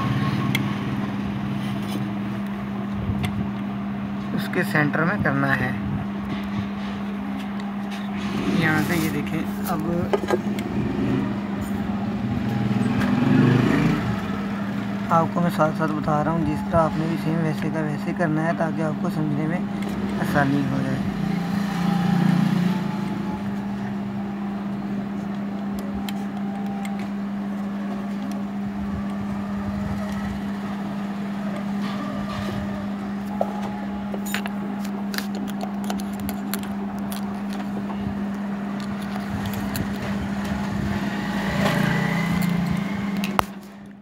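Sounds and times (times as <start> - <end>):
steady low hum: 0.0 - 13.1, 13.7 - 44.0.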